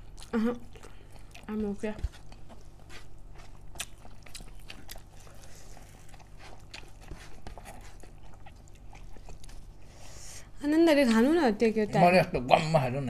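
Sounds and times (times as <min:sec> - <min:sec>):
close chewing mouth noises: 0:00.0 - 0:10.0
low steady hum: 0:00.0 - 0:13.0.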